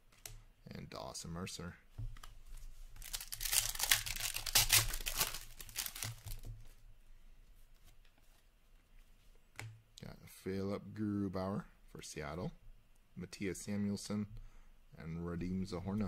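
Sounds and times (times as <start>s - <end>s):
plastic wrapper tearing and crinkling: 3.0s - 6.5s.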